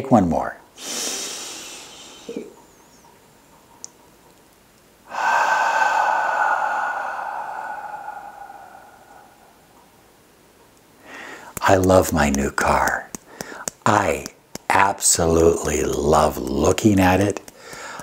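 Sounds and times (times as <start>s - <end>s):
man exhaling slowly: 0.8s - 2.5s, 5.1s - 10.0s.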